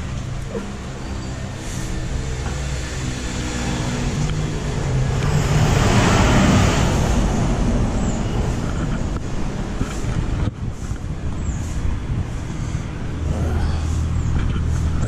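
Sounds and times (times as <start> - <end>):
vehicle passing close by: 0.0 - 10.9
vehicle engines running: 0.0 - 15.0.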